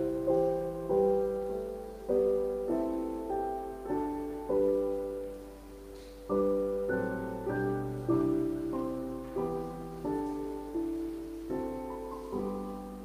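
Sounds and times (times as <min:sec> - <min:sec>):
piano playing gentle chords: 0:00.0 - 0:13.0.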